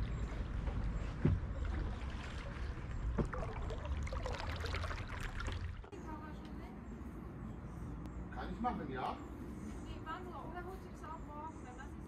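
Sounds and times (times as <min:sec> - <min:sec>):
water drips and splashes: 0:01.6 - 0:05.9.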